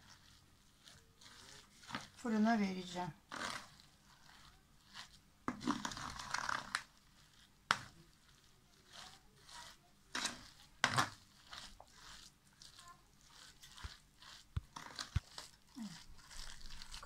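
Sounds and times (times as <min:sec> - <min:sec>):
spoon stirring wet batter: 0:00.0 - 0:17.0.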